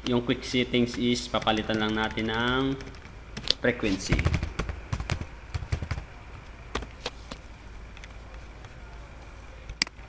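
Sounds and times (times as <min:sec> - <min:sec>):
faint steady hum: 0:00.0 - 0:10.0
computer keyboard keystrokes: 0:00.9 - 0:03.6.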